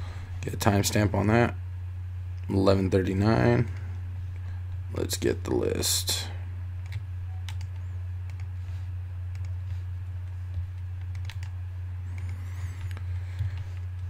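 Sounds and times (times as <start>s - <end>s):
low electrical hum: 0.0s - 14.0s
computer keys and mouse clicking: 6.8s - 8.5s, 9.3s - 9.6s, 10.2s - 11.5s, 12.1s - 14.0s.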